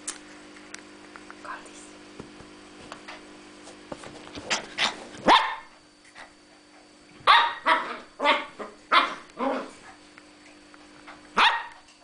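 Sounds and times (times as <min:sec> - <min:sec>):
puppy barking: 0:05.2 - 0:05.7, 0:07.2 - 0:09.7, 0:11.4 - 0:11.9.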